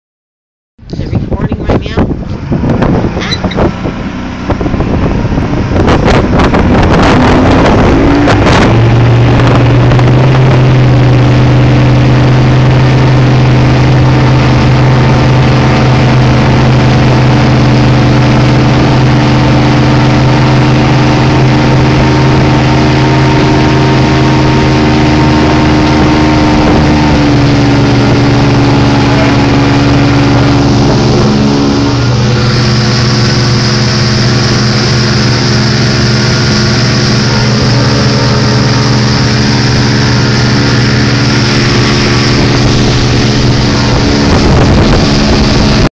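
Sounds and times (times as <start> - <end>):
outboard engine accelerating: 0.8 - 45.9.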